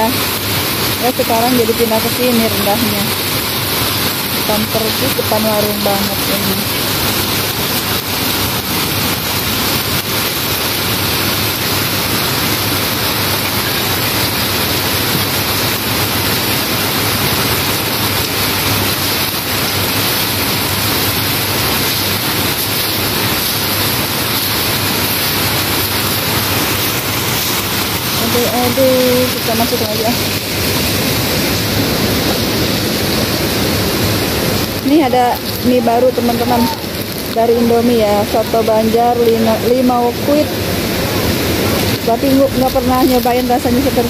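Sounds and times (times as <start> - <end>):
heavy rain on pavement and roofs: 0.0 - 44.0.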